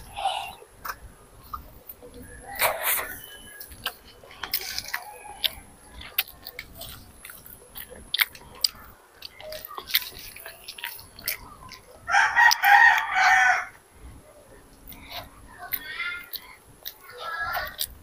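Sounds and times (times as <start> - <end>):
child chewing: 0.0 - 18.0
rooster crowing: 12.1 - 13.8.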